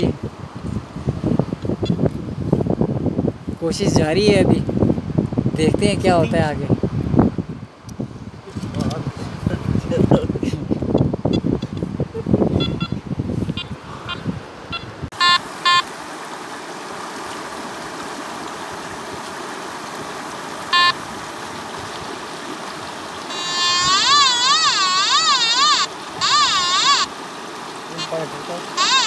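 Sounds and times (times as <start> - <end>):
metal detector beeps: 12.6 - 15.8, 23.3 - 27.1, 28.8 - 29.0
steady rushing hiss: 27.0 - 28.8.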